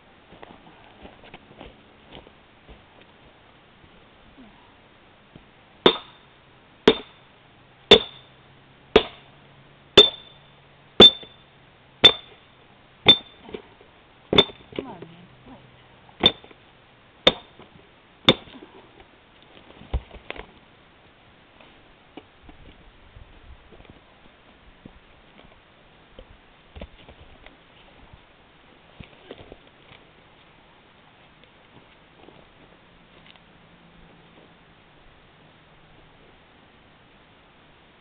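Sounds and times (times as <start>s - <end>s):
maul striking steel wedge: 5.8s - 6.2s, 6.9s - 7.2s, 7.9s - 8.3s, 9.0s - 9.3s, 10.0s - 10.3s, 11.0s - 11.4s, 12.0s - 12.4s, 13.0s - 13.4s, 14.3s - 14.7s, 16.2s - 16.5s, 17.3s - 17.6s, 18.3s - 18.6s.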